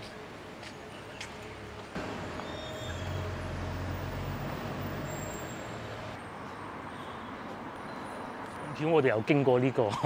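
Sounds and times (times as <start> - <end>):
road traffic noise: 0.0 - 10.0
vehicle engine humming: 2.0 - 6.2.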